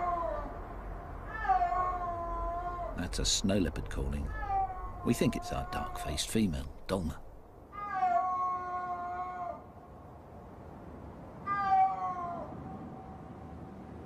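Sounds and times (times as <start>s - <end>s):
snow leopard calling: 4.1s - 8.9s.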